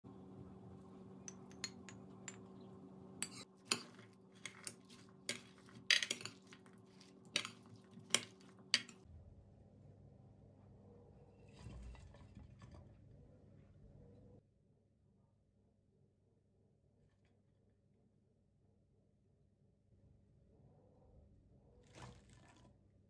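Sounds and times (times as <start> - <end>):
steady low hum: 0.1 - 5.7
metal spoon scraping glass dish: 3.2 - 9.0.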